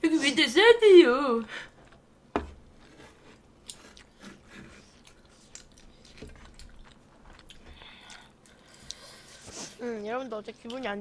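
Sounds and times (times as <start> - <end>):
person chewing food: 2.7 - 9.7.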